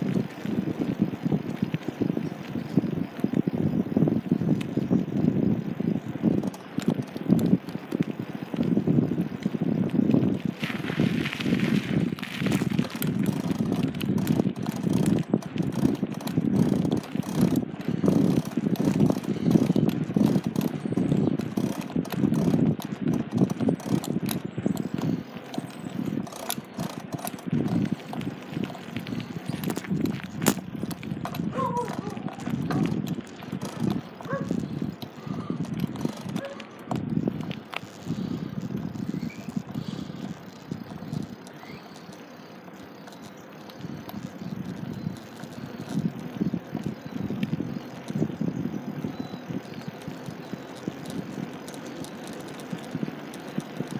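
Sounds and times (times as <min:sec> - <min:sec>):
wheels rolling on rough asphalt: 0:00.0 - 0:53.9
sharp clicks: 0:12.4 - 0:48.2.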